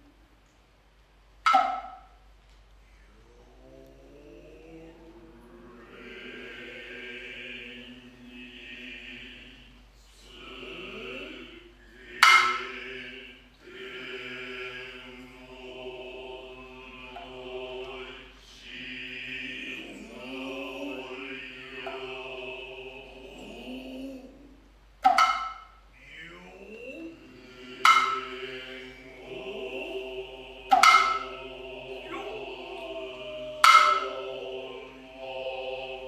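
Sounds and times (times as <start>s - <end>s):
chorus chanting in unison: 3.1s - 36.0s
hand drum stroke: 30.7s - 31.2s.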